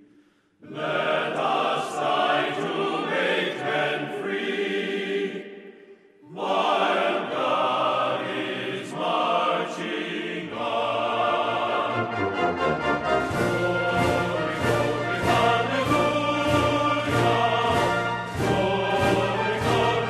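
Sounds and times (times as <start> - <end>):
choir chanting in chords: 0.0 - 20.0.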